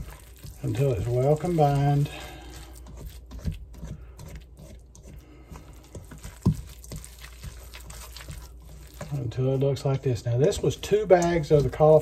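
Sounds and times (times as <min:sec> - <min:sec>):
spatula scraping in metal bowl: 0:00.0 - 0:12.0.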